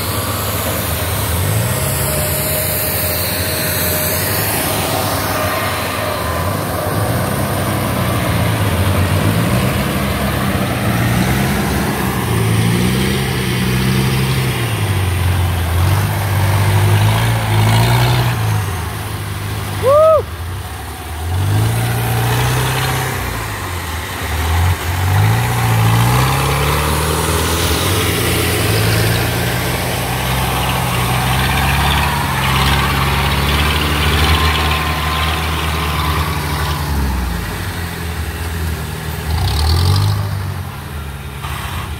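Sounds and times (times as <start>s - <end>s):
harvester engines running: 0.0s - 41.9s.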